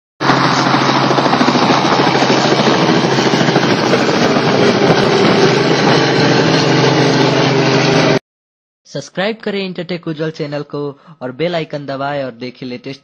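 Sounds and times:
helicopter lifting off: 0:00.2 - 0:08.2.

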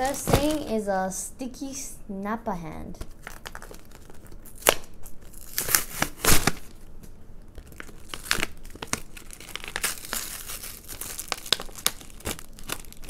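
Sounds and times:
cardboard and plastic tearing: 0:00.0 - 0:00.8, 0:03.0 - 0:06.8, 0:07.6 - 0:13.0.

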